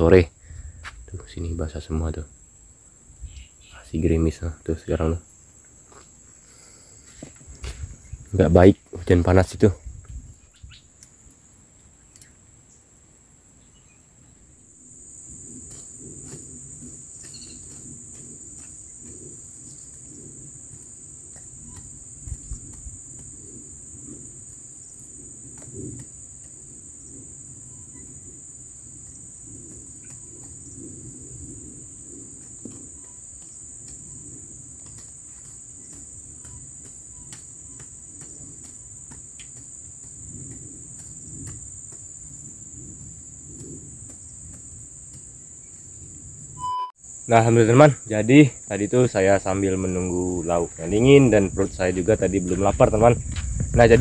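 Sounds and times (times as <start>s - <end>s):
insects buzzing: 0.0s - 54.0s.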